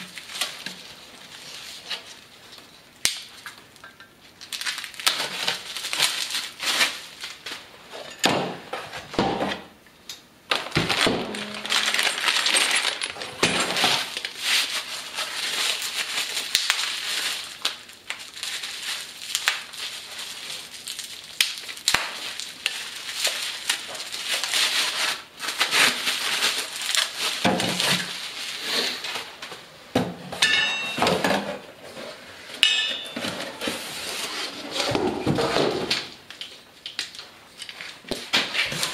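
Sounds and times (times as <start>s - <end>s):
bubble wrap crinkling: 0.0s - 7.7s, 10.5s - 29.7s
metal parts knocking and clinking: 11.2s - 14.0s.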